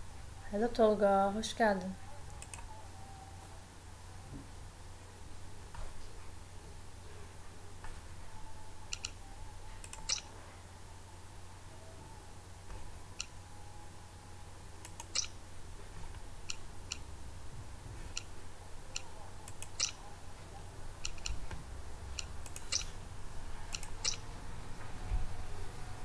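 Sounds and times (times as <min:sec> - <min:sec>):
steady low hum: 0:00.0 - 0:26.0
computer mouse clicking: 0:02.3 - 0:02.7, 0:08.9 - 0:09.2, 0:09.8 - 0:10.2, 0:14.8 - 0:15.3, 0:19.0 - 0:20.0, 0:21.0 - 0:21.4, 0:22.2 - 0:22.9, 0:23.7 - 0:24.2.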